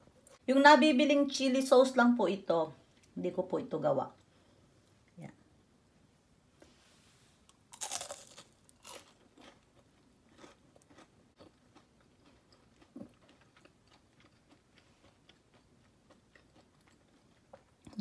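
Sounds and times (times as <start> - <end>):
crunching fried food: 7.5 - 18.0.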